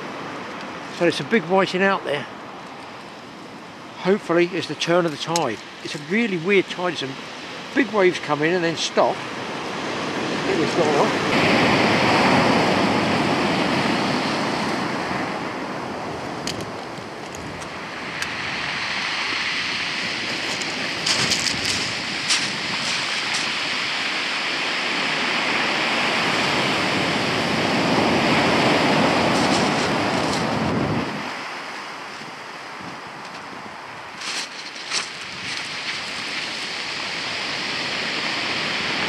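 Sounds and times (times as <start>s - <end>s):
surf breaking on shingle beach: 3.8s - 39.0s.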